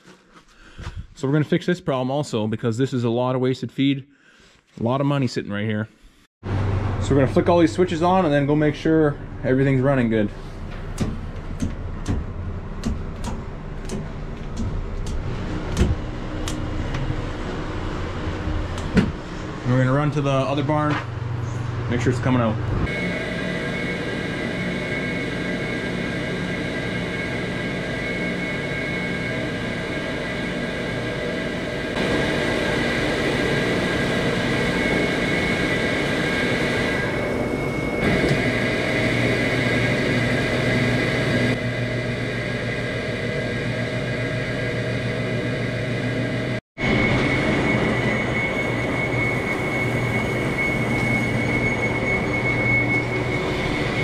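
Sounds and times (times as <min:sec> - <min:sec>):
low hum: 0:06.4 - 0:54.0
high squeal: 0:22.9 - 0:44.8, 0:46.8 - 0:54.0.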